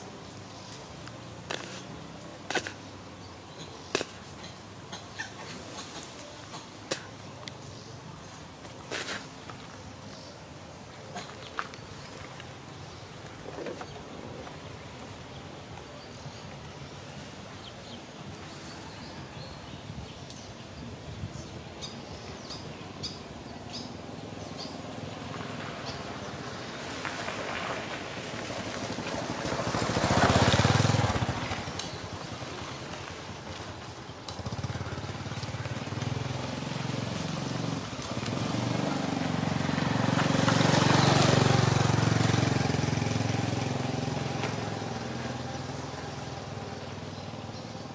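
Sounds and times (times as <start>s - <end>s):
low engine hum: 23.8s - 47.9s
vehicle passing: 24.1s - 47.9s.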